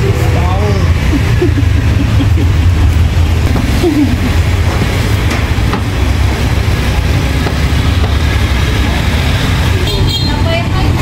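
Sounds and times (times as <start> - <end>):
steady low rumble: 0.0 - 8.8.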